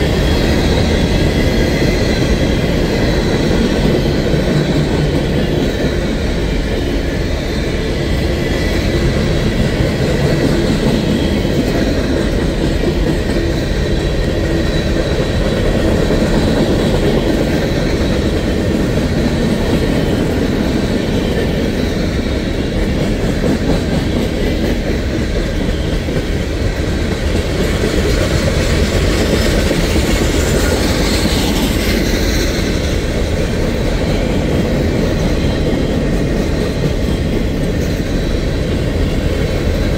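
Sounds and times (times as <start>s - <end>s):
freight train wheels rumbling on rails: 0.0s - 39.9s.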